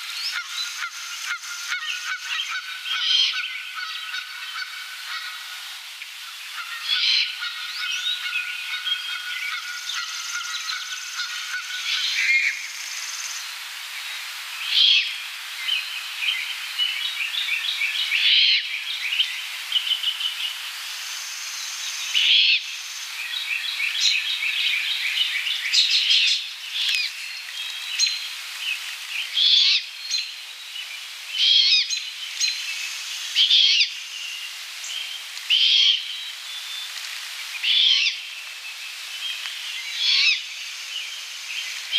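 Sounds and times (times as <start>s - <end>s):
owl fledgling begging screeches: 22.2s - 22.7s, 29.4s - 29.9s, 31.4s - 32.5s, 33.4s - 34.0s, 35.5s - 36.1s, 37.6s - 38.2s, 39.9s - 40.5s
birds chirping and whistling: 31.4s - 36.9s, 37.6s - 41.9s.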